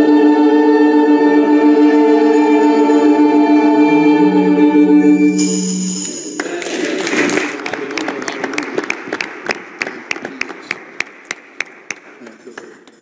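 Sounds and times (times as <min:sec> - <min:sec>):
worship song chord sung: 0:00.0 - 0:06.6
congregation applauding: 0:06.0 - 0:13.0.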